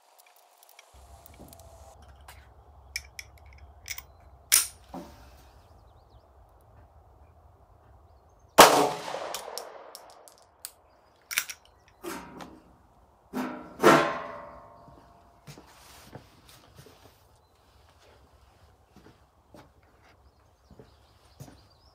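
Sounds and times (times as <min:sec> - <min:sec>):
light metallic clicks: 0:02.9 - 0:04.9
pistol shot: 0:08.6 - 0:10.3.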